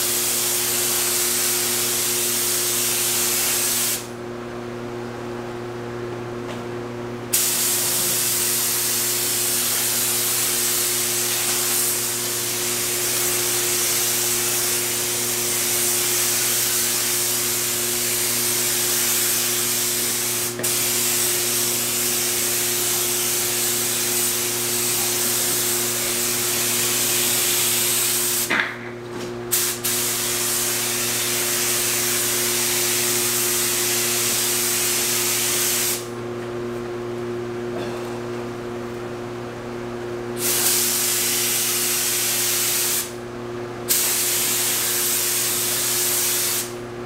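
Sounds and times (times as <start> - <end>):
paint spray gun hissing: 0.1 - 4.1, 7.3 - 28.5, 29.5 - 36.1, 40.4 - 43.2, 43.9 - 46.7.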